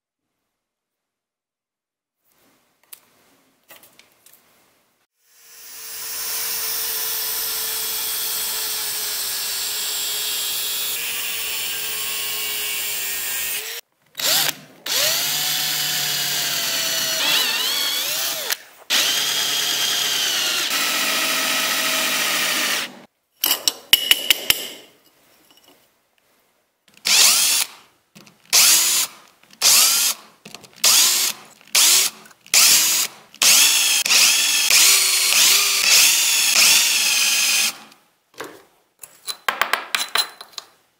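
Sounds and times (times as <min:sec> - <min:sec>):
electric drill boring through metal: 0:05.4 - 0:23.0, 0:27.1 - 0:27.8, 0:30.8 - 0:37.9.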